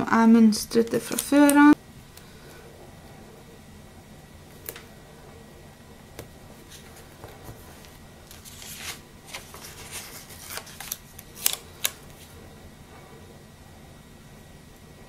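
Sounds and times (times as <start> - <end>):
paper rustling and crinkling: 6.6 - 12.4.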